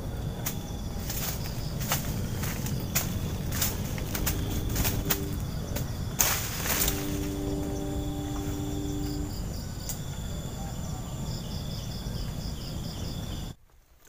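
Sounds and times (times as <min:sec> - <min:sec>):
low rumble: 0:00.0 - 0:13.5
insects trilling: 0:00.0 - 0:13.6
steady low hum: 0:00.0 - 0:13.6
pulsing chirp: 0:02.1 - 0:09.9.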